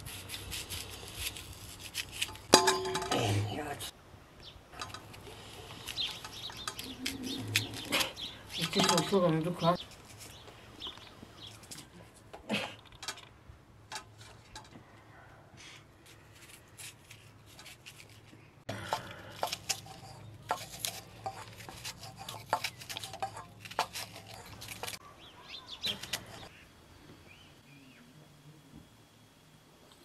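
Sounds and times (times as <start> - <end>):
knife slicing onion: 16.4 - 25.0.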